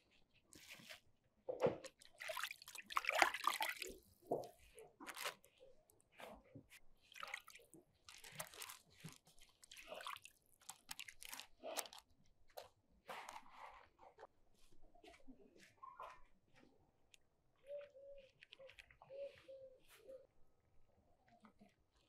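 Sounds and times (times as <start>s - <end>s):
wet dough handling: 1.8s - 14.3s
liquid dripping: 1.9s - 4.4s
parchment paper crinkling: 3.8s - 14.0s.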